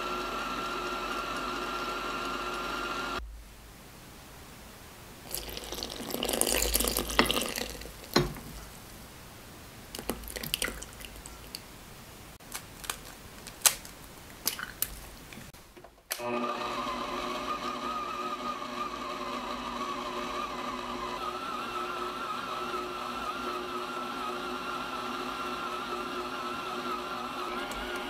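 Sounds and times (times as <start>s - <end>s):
stand mixer motor: 0.0s - 3.2s, 16.2s - 28.0s
liquid pouring splash: 5.2s - 8.2s, 10.0s - 11.6s, 14.4s - 15.0s
drips and light clicks: 14.4s - 15.5s.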